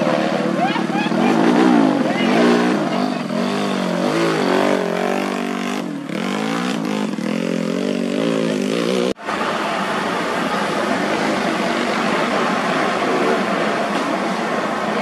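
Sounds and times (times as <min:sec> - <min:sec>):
dirt bike engine revving: 0:00.0 - 0:09.2
steady indistinct noise: 0:00.0 - 0:15.0.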